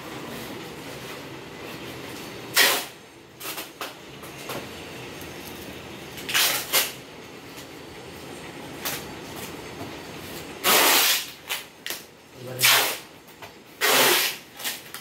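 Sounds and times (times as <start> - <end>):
cardboard scraping on tiled floor: 13.8 - 15.0.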